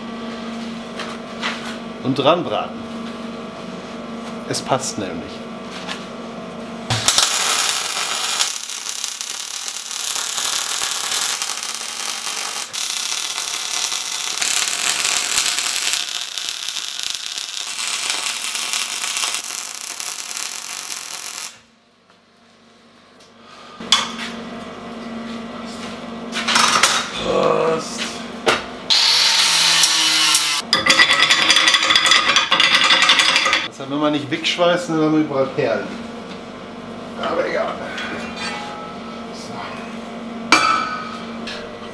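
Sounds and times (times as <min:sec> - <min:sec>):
welder arc crackling and hissing: 0:06.9 - 0:21.7, 0:28.9 - 0:30.6.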